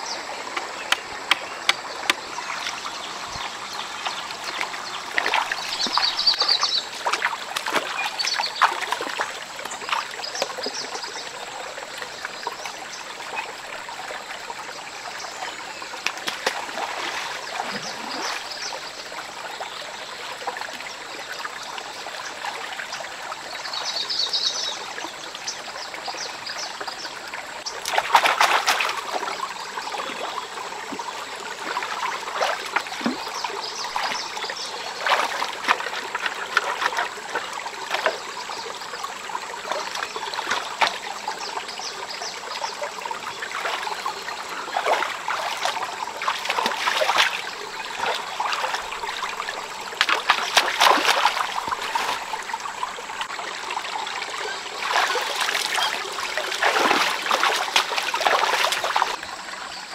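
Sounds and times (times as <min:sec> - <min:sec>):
stream trickling: 0:00.0 - 0:59.9
feet splashing in water: 0:00.5 - 0:10.9, 0:16.0 - 0:18.7, 0:27.8 - 0:38.3, 0:39.6 - 0:41.2, 0:43.3 - 0:53.3, 0:54.8 - 0:59.2.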